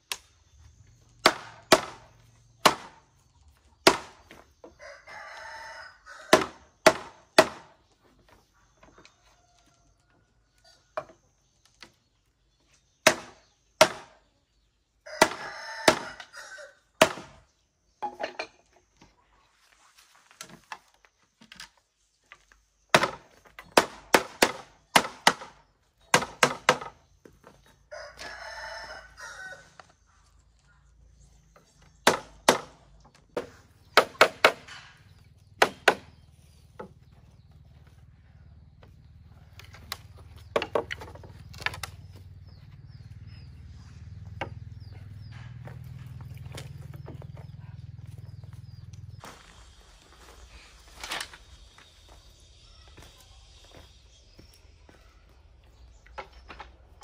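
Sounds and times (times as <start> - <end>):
tool striking wood: 1.2 - 3.0, 3.8 - 4.4, 6.3 - 7.7, 32.0 - 37.0
rooster crowing: 4.8 - 6.4, 15.0 - 16.9, 27.9 - 29.8.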